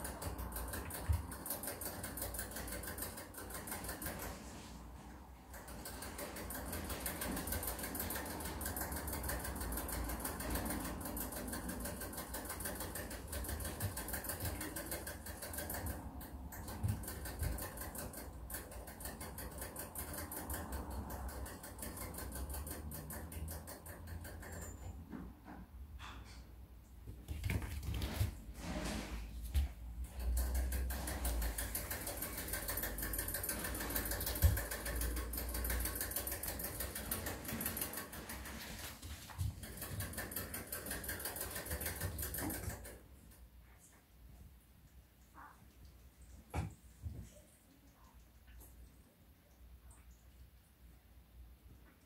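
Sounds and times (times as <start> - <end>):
rabbit licking water bottle nozzle: 0.0 - 4.5, 5.5 - 25.0, 30.0 - 43.4.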